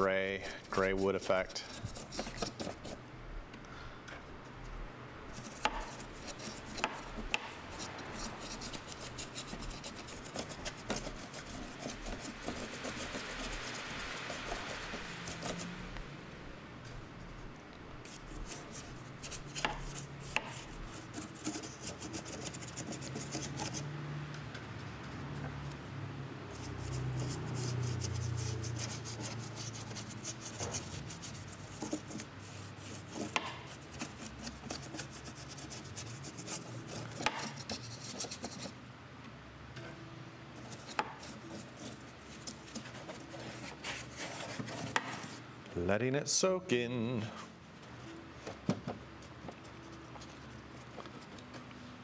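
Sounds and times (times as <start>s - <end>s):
paintbrush scrubbing wood: 0.4s - 3.0s, 5.3s - 15.9s, 16.9s - 23.9s, 26.5s - 38.8s, 40.6s - 45.5s.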